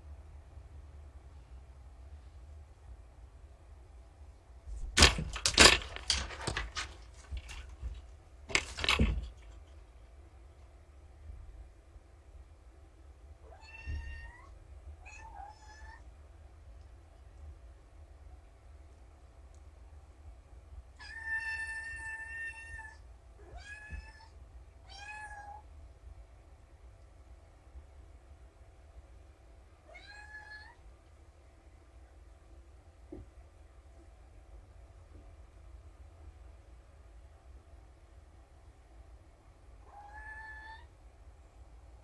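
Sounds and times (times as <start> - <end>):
kittens pawing at camera: 4.7 - 9.8.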